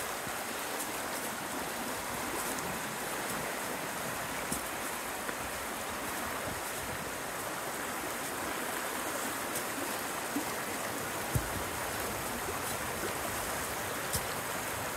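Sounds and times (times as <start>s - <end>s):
fast-flowing creek rushing: 0.0s - 14.9s
faint ticks: 4.4s - 5.4s.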